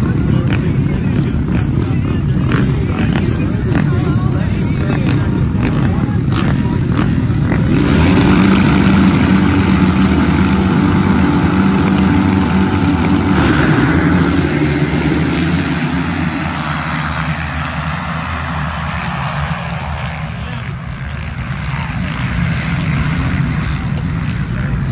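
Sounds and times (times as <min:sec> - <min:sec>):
flying dirt: 0:00.0 - 0:22.5
motocross bikes revving: 0:00.0 - 0:24.9.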